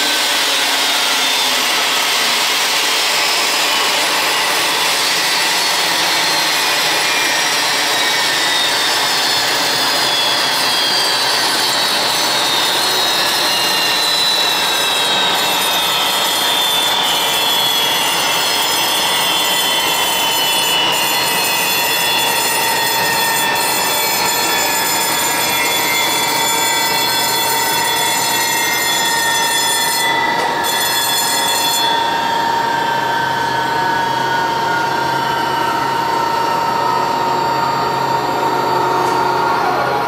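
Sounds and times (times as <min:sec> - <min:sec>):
jet turbine whine winding down: 0:00.0 - 0:29.5, 0:31.8 - 0:40.0.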